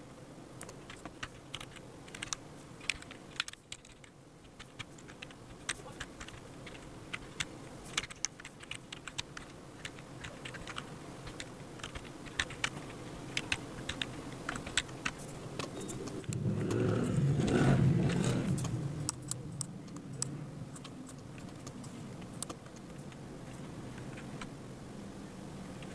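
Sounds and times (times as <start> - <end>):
keyboard typing clicks: 0.6 - 23.2
low rumble: 16.2 - 19.9.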